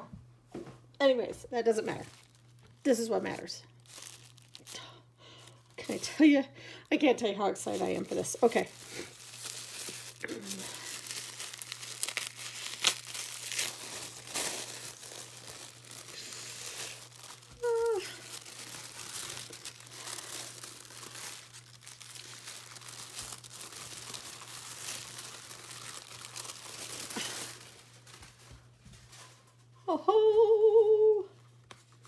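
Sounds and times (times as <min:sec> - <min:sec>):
tissue paper crinkling: 0:01.6 - 0:06.3, 0:07.1 - 0:29.6
paper tape peeling: 0:08.8 - 0:27.7.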